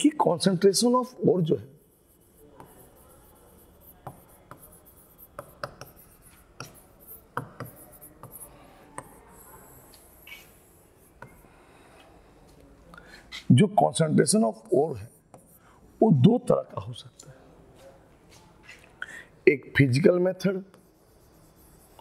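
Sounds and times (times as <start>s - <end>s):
pen writing by hand: 1.9s - 11.4s, 20.7s - 22.0s.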